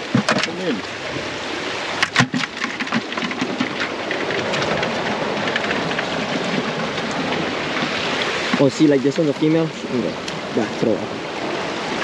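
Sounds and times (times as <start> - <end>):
sea water splashing over rocks: 0.0 - 12.0
sharp knocks: 2.0 - 8.7.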